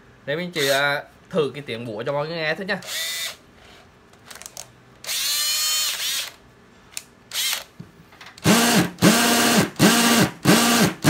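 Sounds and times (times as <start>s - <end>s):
cordless hammer drill buzzing: 0.6s - 0.8s, 2.8s - 3.4s, 5.0s - 6.4s, 7.3s - 7.7s, 8.4s - 11.0s.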